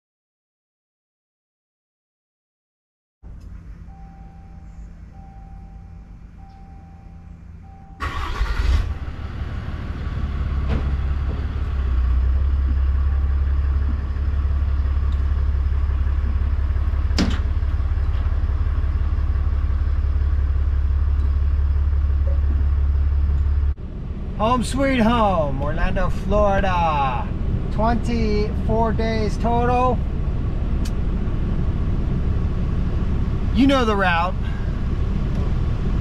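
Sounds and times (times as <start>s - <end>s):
truck engine starting and idling: 3.2s - 36.0s
truck warning chime beeping: 3.8s - 9.0s, 22.2s - 22.7s.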